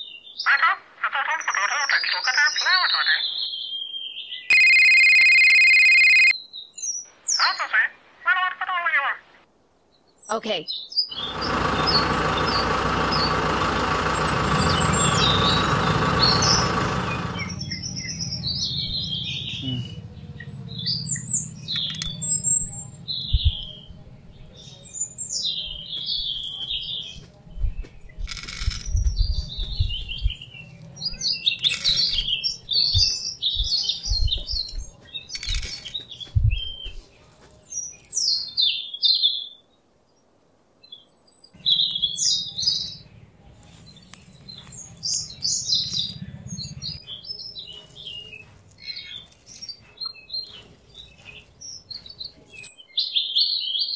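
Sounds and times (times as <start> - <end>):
small birds chirping: 0.0 - 9.0, 9.8 - 53.9
loud steady drone: 11.2 - 24.6.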